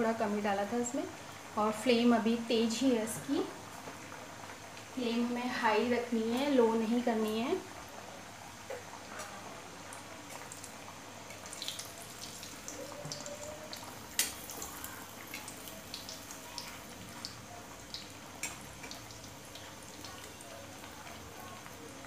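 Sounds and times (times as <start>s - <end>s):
deep-frying sizzle: 0.0s - 22.0s
metal spoon clicking on pan: 14.1s - 14.5s.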